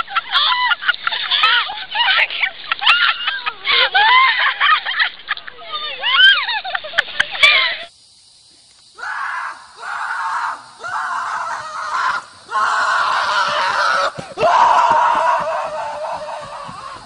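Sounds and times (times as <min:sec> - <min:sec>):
person screaming: 0:09.0 - 0:17.0.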